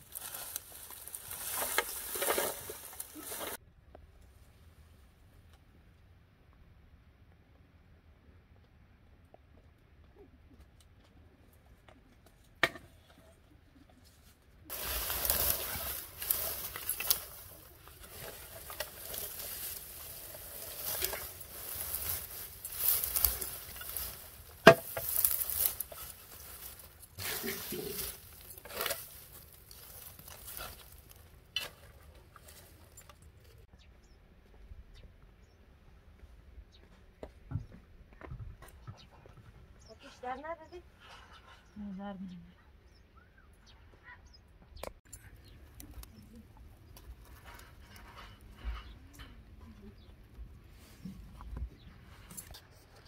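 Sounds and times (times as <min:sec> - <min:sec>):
dry straw rustling and crackling: 0:00.0 - 0:03.6, 0:14.2 - 0:33.7, 0:45.1 - 0:53.0.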